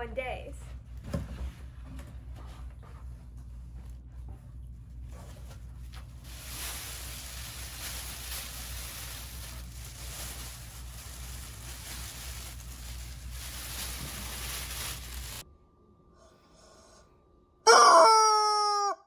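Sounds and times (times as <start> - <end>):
steady low hum: 0.0 - 17.6
plastic film crinkling: 5.6 - 15.4.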